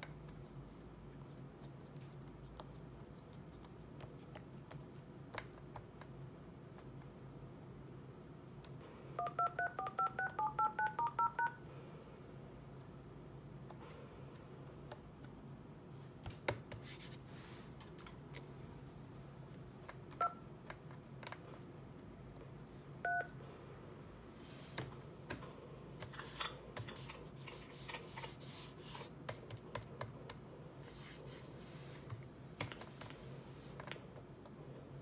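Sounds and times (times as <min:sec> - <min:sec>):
keypad buttons clicking: 0:09.2 - 0:11.5
two-tone dialing beeps: 0:09.2 - 0:11.6, 0:23.1 - 0:23.3.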